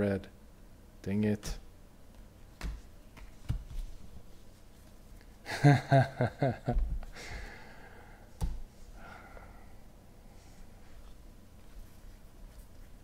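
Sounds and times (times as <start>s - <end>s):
breathy exhale: 7.1s - 8.3s, 9.0s - 10.6s.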